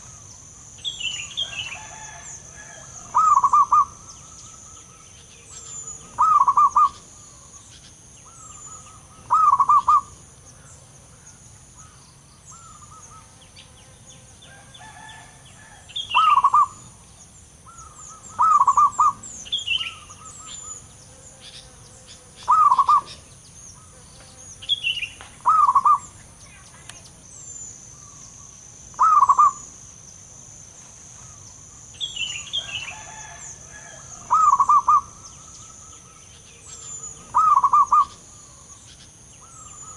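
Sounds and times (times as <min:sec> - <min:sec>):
small birds chirping: 0:00.0 - 0:02.1, 0:03.0 - 0:15.1, 0:15.9 - 0:39.9
dove cooing: 0:01.4 - 0:05.0, 0:05.6 - 0:07.6, 0:08.3 - 0:10.2, 0:14.8 - 0:16.9, 0:17.7 - 0:20.8, 0:22.4 - 0:23.2, 0:25.4 - 0:26.2, 0:29.0 - 0:29.7, 0:32.9 - 0:38.7.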